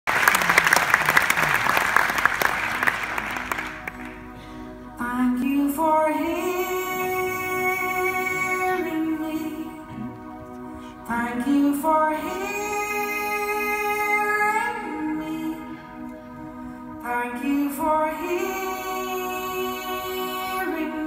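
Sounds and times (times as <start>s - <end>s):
audience applause: 0.0s - 4.3s
woman singing: 5.0s - 9.9s, 11.1s - 15.9s, 17.1s - 21.0s.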